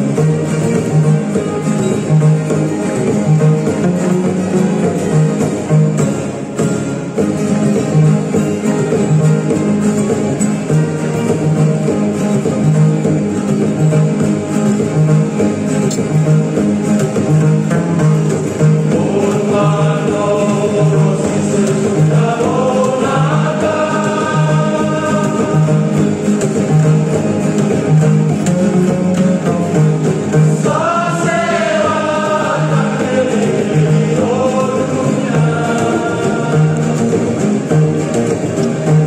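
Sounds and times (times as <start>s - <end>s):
plucked upright bass: 0.0s - 39.0s
strummed acoustic guitars: 0.0s - 39.0s
men singing gospel song: 18.8s - 26.2s, 30.4s - 37.3s.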